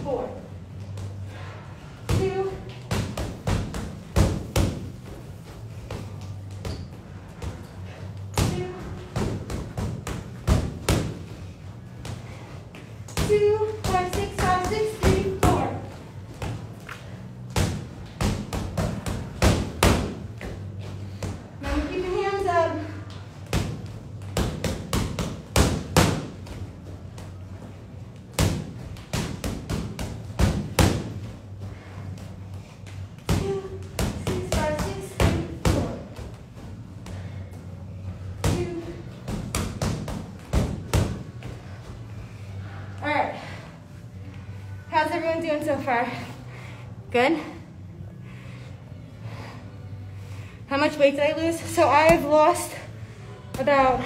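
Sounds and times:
punches thudding on punching bag: 0:02.1 - 0:05.1, 0:08.3 - 0:11.4, 0:17.5 - 0:22.3, 0:23.4 - 0:27.3, 0:28.3 - 0:31.3, 0:33.2 - 0:36.4, 0:38.2 - 0:41.6
boxing gloves punching heavy bag: 0:23.4 - 0:26.8, 0:28.3 - 0:31.4.

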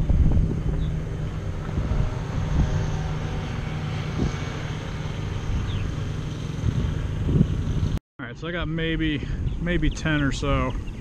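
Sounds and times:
engine droning: 0:00.0 - 0:08.0.

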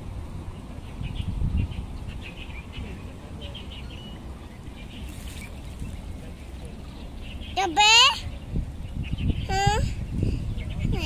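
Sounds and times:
steady low rumble: 0:00.0 - 0:07.6
small birds chirping: 0:00.0 - 0:11.0.

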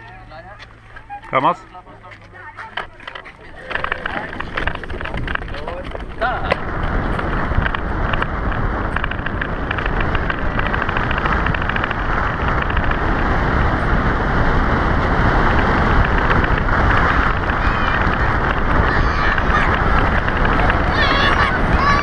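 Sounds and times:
cart wheels rumbling on asphalt: 0:00.0 - 0:22.0
fast rattle: 0:02.8 - 0:06.3, 0:07.2 - 0:13.2, 0:15.4 - 0:21.6
wind rushing over microphone: 0:03.0 - 0:22.0.

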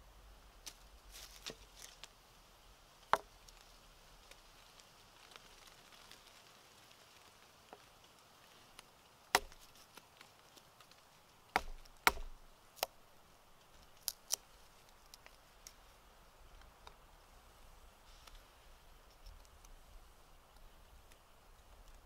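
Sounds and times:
knife splitting wooden stick: 0:09.4 - 0:10.0, 0:11.5 - 0:13.0, 0:13.8 - 0:15.4.

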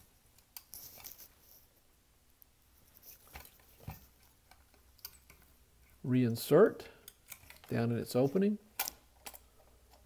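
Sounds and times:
faint clicks and taps of metal: 0:02.3 - 0:05.5.

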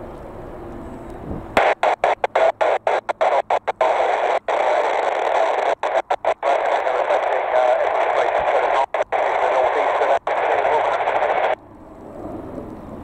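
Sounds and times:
radio static hiss: 0:01.6 - 0:11.6.

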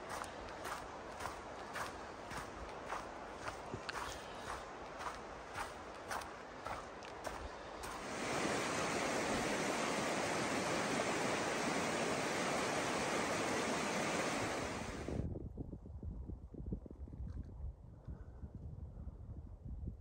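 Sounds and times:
wind buffeting microphone: 0:00.0 - 0:20.0
stream rushing over rocks: 0:06.8 - 0:15.2.

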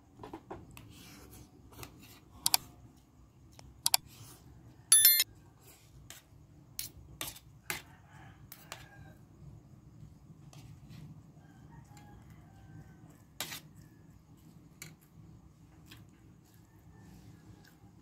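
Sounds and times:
cutlery clinking on a plate: 0:04.9 - 0:05.2.

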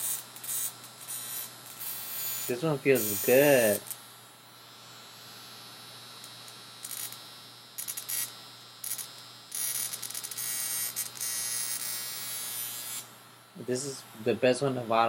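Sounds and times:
sharp electric crackling: 0:00.0 - 0:04.1, 0:06.2 - 0:13.1
electric wand buzzing: 0:00.0 - 0:15.0.

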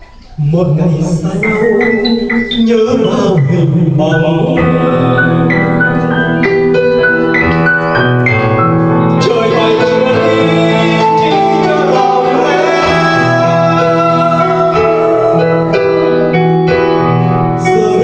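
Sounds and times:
piano playing: 0:00.0 - 0:18.0
man singing into a microphone: 0:00.4 - 0:06.2, 0:09.2 - 0:16.0, 0:17.6 - 0:18.0.

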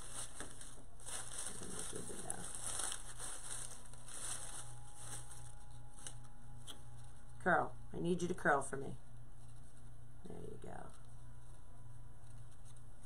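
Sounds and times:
crinkly rustling of ribbon and flowers: 0:00.0 - 0:07.5
steady low hum: 0:00.0 - 0:13.0.

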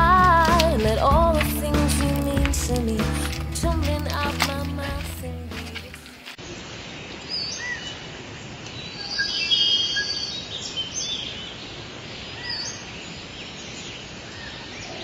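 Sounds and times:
high chirps and calls: 0:08.8 - 0:11.4.

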